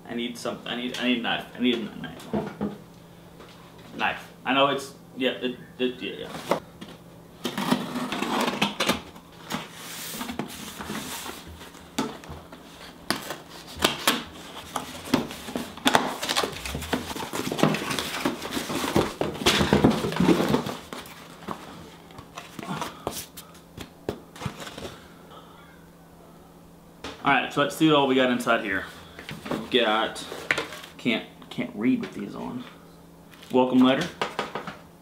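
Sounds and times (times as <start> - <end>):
cardboard scraping and tearing: 7.4 - 8.8, 13.1 - 21.5.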